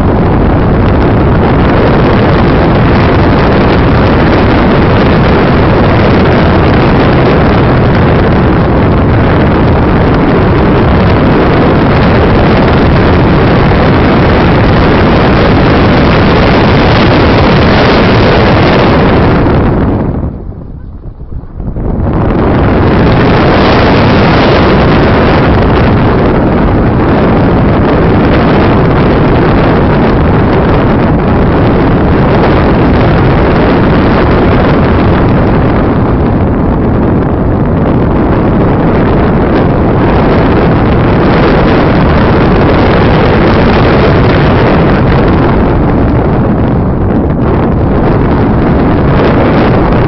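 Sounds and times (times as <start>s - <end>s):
wind buffeting a microphone: 0.0s - 50.0s.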